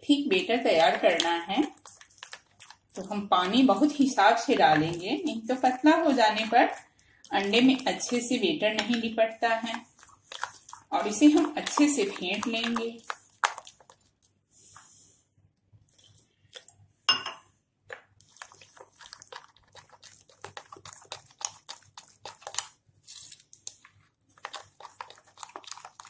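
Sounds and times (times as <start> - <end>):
spoon beating thick batter: 0.2 - 14.3, 16.0 - 22.9, 23.5 - 26.0
spoon clinking on glass bowl: 17.1 - 17.5.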